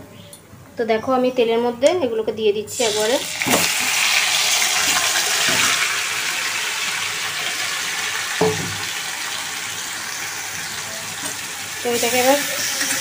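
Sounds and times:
meat sizzling in hot oil: 2.7s - 13.0s.

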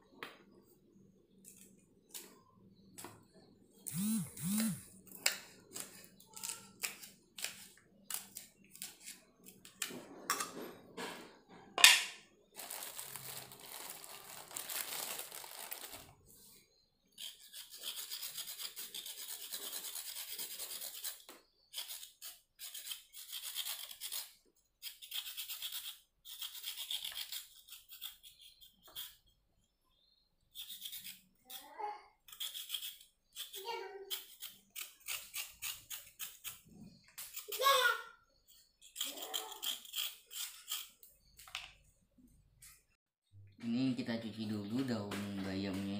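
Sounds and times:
knife scraping carrot: 3.9s - 9.9s, 17.0s - 29.4s, 30.5s - 31.6s, 32.2s - 41.4s.

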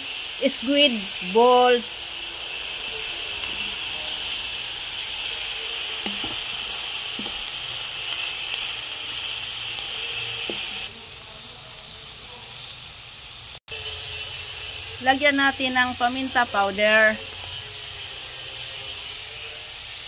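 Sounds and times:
food sizzling in hot oil: 0.0s - 20.0s
wooden spatula knocking: 6.0s - 6.5s, 7.2s - 7.5s.

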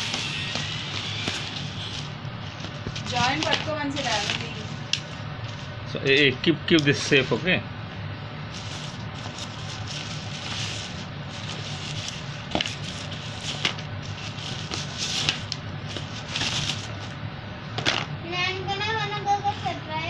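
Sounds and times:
plastic packaging crinkling: 0.0s - 6.2s, 8.5s - 17.2s, 17.8s - 18.2s
steady low hum: 0.0s - 20.0s.

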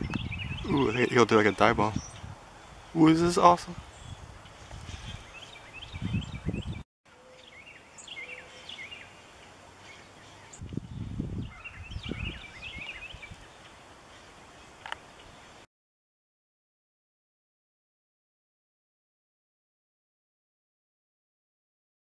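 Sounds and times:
birds chirping: 0.0s - 15.6s.

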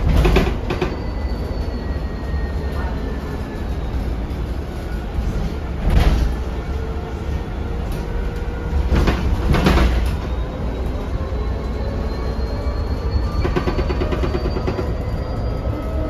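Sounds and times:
knocks and rattles: 0.0s - 1.0s, 13.4s - 15.0s
bus engine and road rumble: 0.0s - 16.0s.

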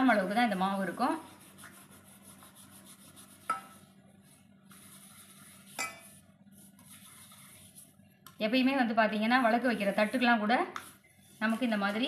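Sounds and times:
faint rubbing: 4.2s - 8.0s.

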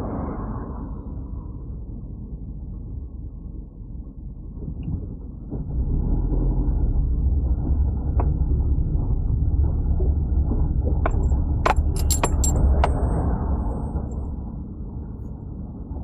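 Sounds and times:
car engine and road rumble: 0.8s - 16.0s
sharp clicks and jingles: 11.0s - 14.2s.

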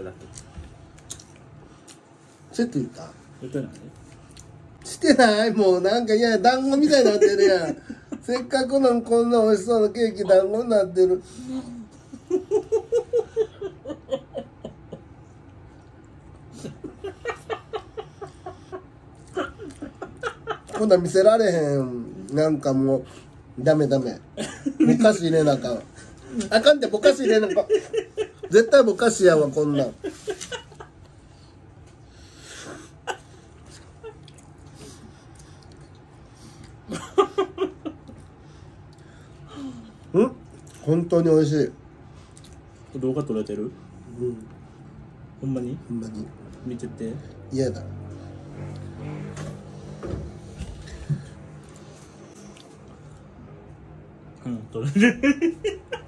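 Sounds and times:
man laughing: 6.8s - 8.5s, 11.5s - 15.1s, 16.5s - 21.1s, 24.4s - 25.7s, 26.3s - 31.0s, 36.9s - 38.1s, 54.8s - 56.0s.

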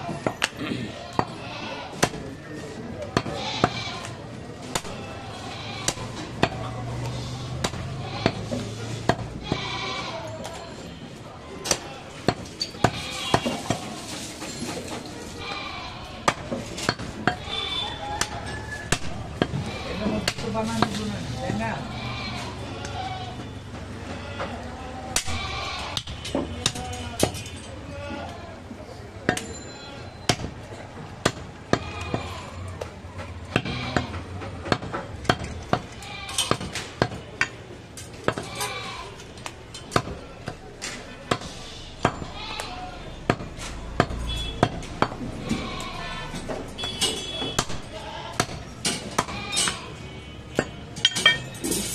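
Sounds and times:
goats bleating: 0.0s - 2.0s, 3.2s - 8.5s, 9.4s - 11.0s, 11.8s - 14.2s, 15.2s - 16.3s, 19.5s - 20.2s, 21.6s - 26.2s, 27.7s - 28.7s, 31.7s - 32.8s, 33.5s - 34.4s, 35.9s - 36.6s, 38.4s - 39.4s, 42.2s - 43.2s, 45.3s - 46.9s, 47.9s - 50.0s.

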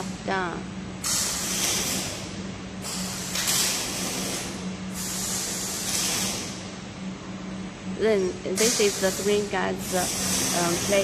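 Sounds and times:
compressed air hissing: 2.8s - 6.6s, 8.6s - 11.0s
spraying machine humming: 7.9s - 11.0s.

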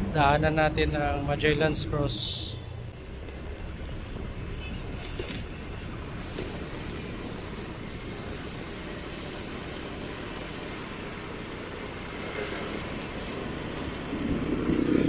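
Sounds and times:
vehicle road noise: 0.0s - 15.0s
wind rush: 12.3s - 15.0s.

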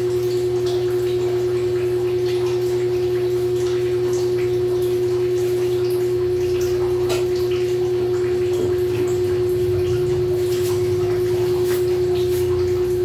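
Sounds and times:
electric fan humming: 0.0s - 13.0s.

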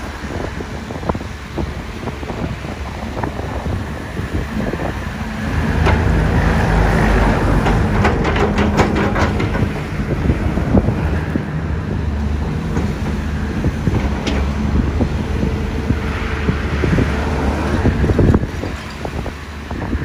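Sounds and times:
excavator diesel engine running: 0.0s - 20.0s
bucket knocks and clicks: 7.5s - 10.0s.

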